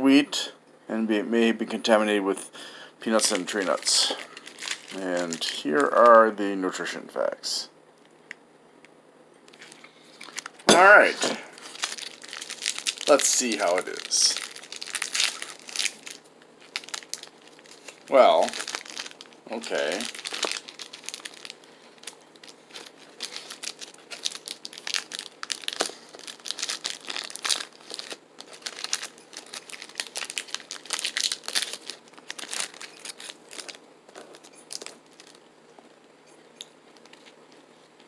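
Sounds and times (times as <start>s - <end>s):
plastic wrapper crinkling and tearing: 3.2s - 6.2s, 9.5s - 35.4s, 36.9s - 37.4s.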